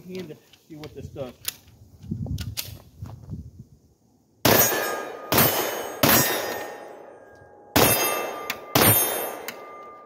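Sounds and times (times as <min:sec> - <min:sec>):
pistol shots: 0:04.4 - 0:07.1, 0:07.7 - 0:10.0.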